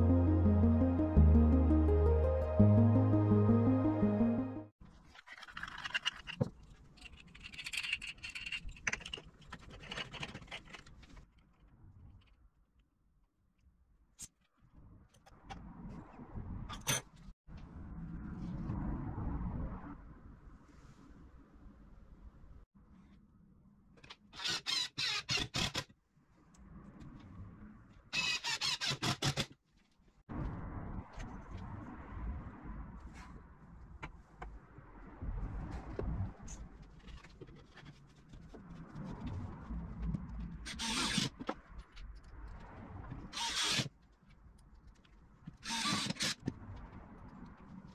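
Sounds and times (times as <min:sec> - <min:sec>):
small clicks and scrapes: 0:05.0 - 0:12.4.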